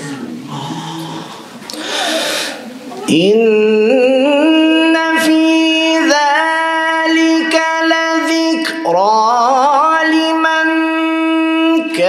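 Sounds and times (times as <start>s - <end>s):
short breaths: 0.5s - 2.9s
man chanting melodically: 3.0s - 12.0s.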